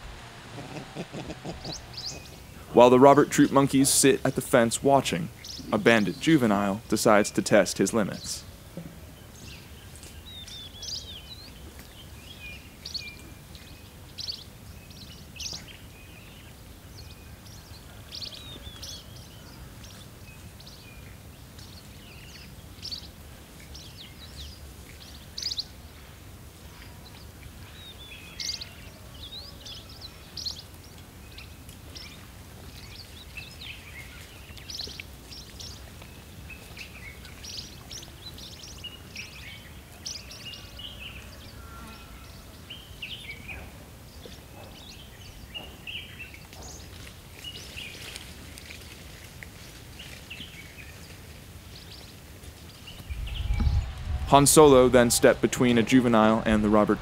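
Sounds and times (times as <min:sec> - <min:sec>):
high chirping calls: 0:00.0 - 0:03.8
low outdoor rumble: 0:00.0 - 0:04.6, 0:52.9 - 0:57.0.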